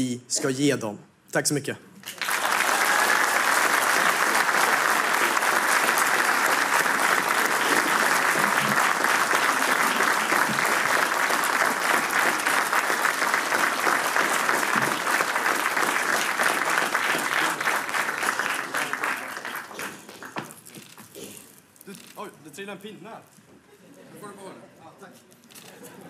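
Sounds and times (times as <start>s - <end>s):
audience applauding: 2.0s - 20.7s.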